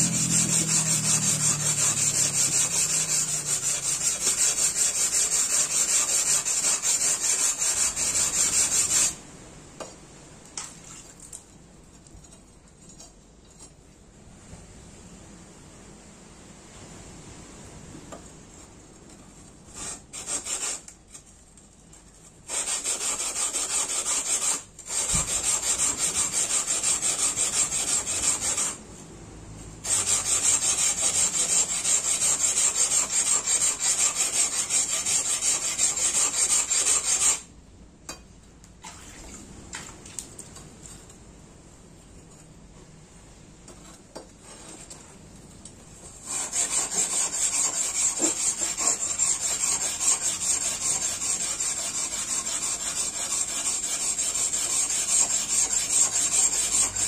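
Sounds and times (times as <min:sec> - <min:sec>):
blade grinding on whetstone: 0:00.0 - 0:09.2, 0:22.5 - 0:28.8, 0:29.8 - 0:37.4, 0:46.2 - 0:57.0.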